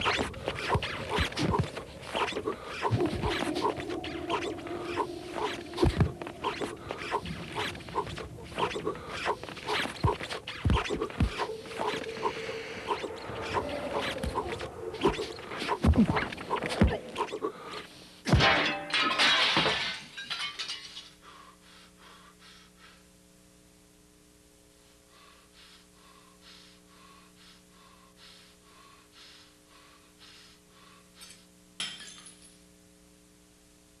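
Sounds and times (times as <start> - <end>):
low steady hum: 0.0 - 34.0
glass pieces tinkling: 31.8 - 32.6.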